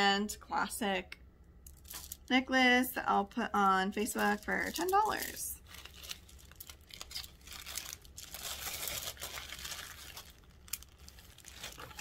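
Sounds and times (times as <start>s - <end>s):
items rustling on a table: 4.0s - 12.0s.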